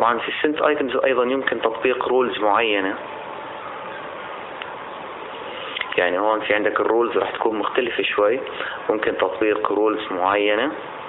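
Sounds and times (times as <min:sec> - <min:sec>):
background hiss: 0:00.0 - 0:11.0.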